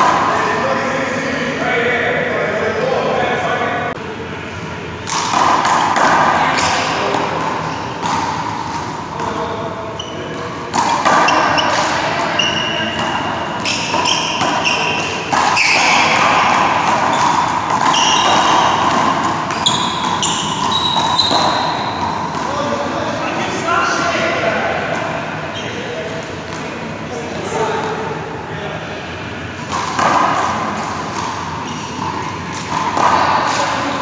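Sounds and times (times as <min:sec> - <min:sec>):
sneakers squeaking on floor: 0:07.6 - 0:22.6, 0:25.5 - 0:26.2, 0:31.2 - 0:33.8.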